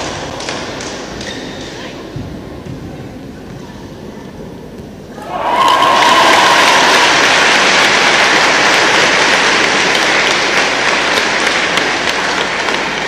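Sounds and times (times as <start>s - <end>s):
crowd applauding: 5.2s - 13.0s.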